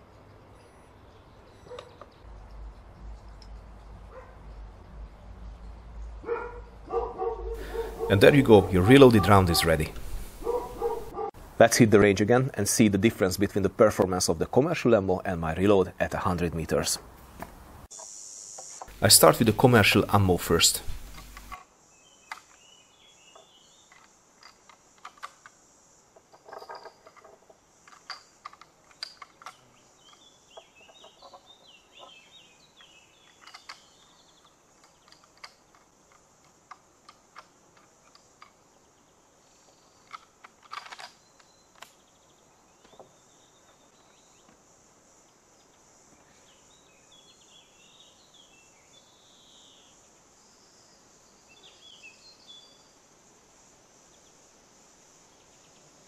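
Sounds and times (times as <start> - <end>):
birds chirping: 0.0 - 24.3, 28.3 - 35.9
high insect drone: 17.8 - 40.6, 41.2 - 56.0
metallic clicks of rifle loading: 23.9 - 25.6, 26.5 - 30.2, 33.2 - 38.6, 40.0 - 42.0.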